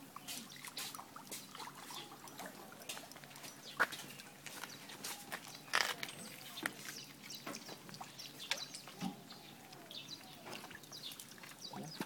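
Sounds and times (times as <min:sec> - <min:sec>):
water dripping off net: 0:00.0 - 0:12.0.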